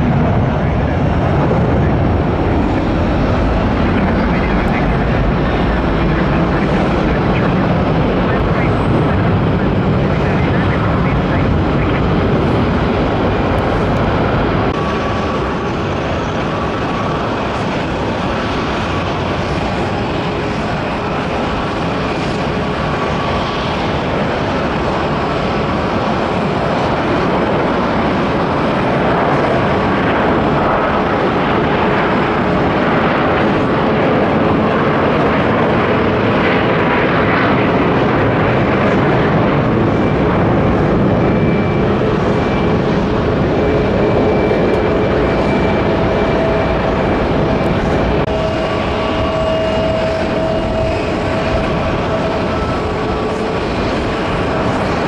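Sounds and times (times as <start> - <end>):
jet engine takeoff roar: 0.0 - 55.0.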